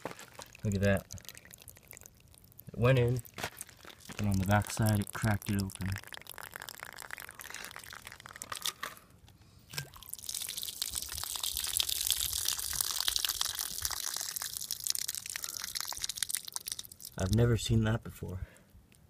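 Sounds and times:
water trickling from bottle: 0.0s - 8.9s, 9.7s - 17.4s
light crackles: 0.0s - 9.5s.

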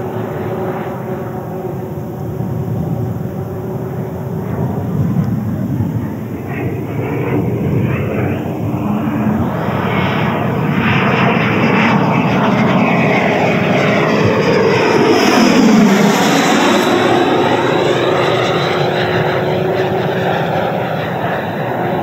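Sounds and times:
electric ducted fan jet passing: 13.0s - 21.2s.

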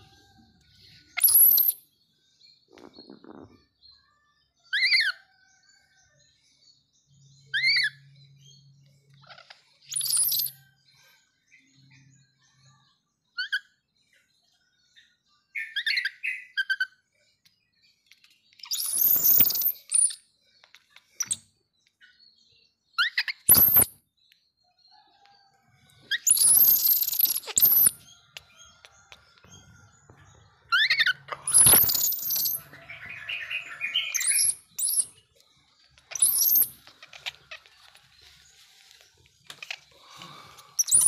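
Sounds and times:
baby monkey squeaky calls: 9.3s - 10.5s, 18.6s - 20.2s, 23.0s - 23.9s, 26.1s - 28.5s, 30.7s - 35.1s, 36.0s - 37.7s
baby monkey shrill squeal: 26.1s - 28.0s, 36.1s - 37.4s.

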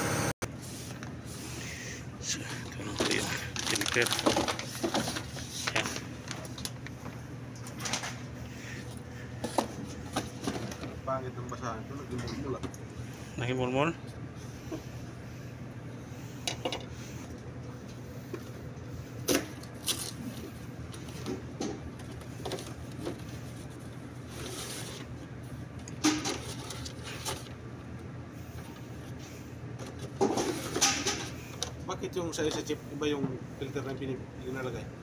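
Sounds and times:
steady low hum: 0.0s - 35.0s
cardboard rustle: 3.0s - 6.6s.

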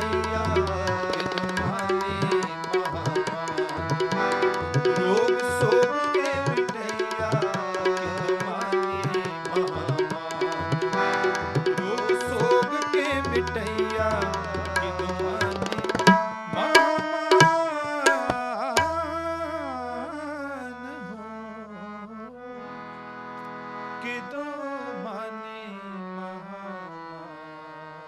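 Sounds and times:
tabla drumming: 0.0s - 19.3s
harmonium chords: 0.0s - 28.0s.

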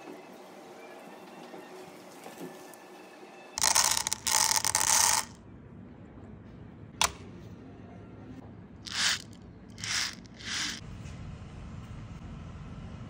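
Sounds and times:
pellets rattling into metal tin: 3.6s - 5.4s, 9.8s - 10.8s
pellets rolling across tin: 3.6s - 5.4s, 8.9s - 10.8s.

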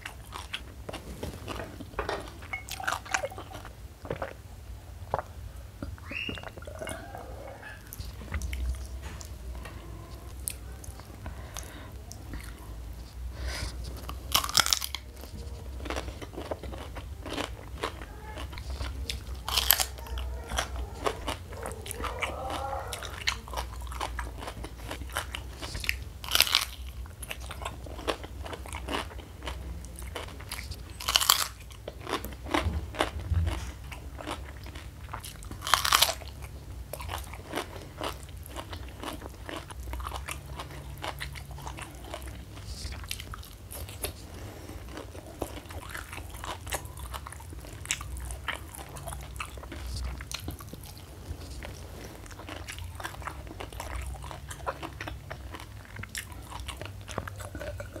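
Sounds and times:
chewing with wet crunches: 0.0s - 58.0s.

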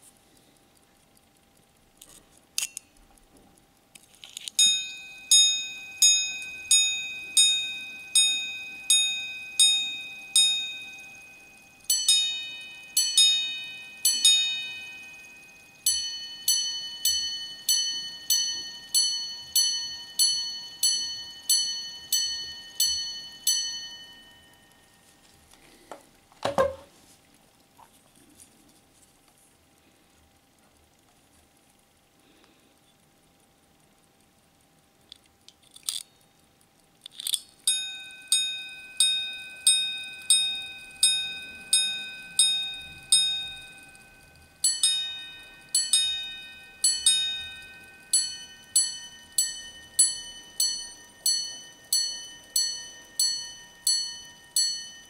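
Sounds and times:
watch chiming on gongs: 4.6s - 25.2s, 37.7s - 55.0s.

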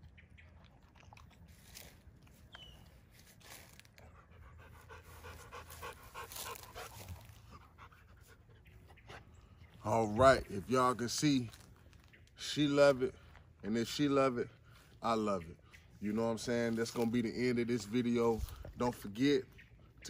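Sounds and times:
dog panting: 4.0s - 9.8s.

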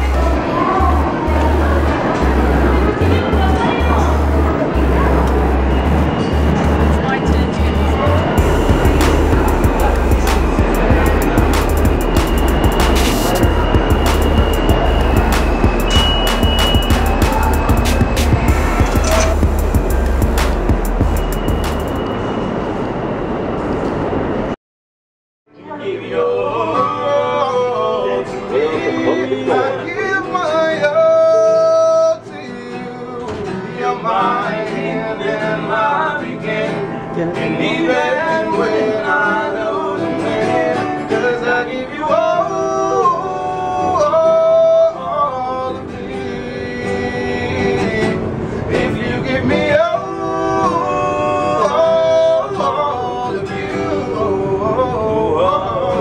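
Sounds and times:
acoustic guitar strumming: 0.0s - 22.2s, 26.4s - 56.0s
man singing: 8.0s - 19.6s, 25.6s - 56.0s.

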